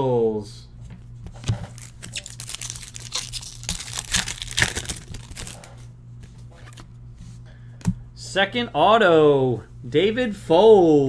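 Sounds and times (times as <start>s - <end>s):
cards and wrapping crinkling: 1.3s - 5.9s.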